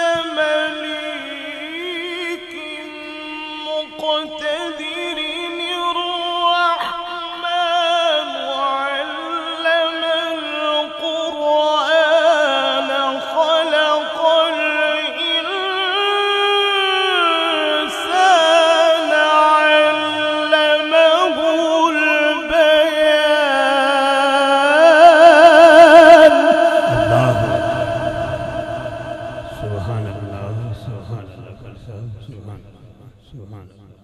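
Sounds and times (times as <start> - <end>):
man reciting melodically: 0.0 - 34.0.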